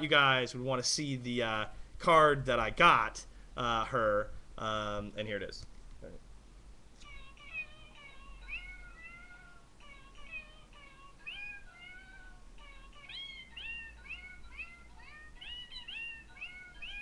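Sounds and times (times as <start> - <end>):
recorded cat meows: 7.0 - 17.0.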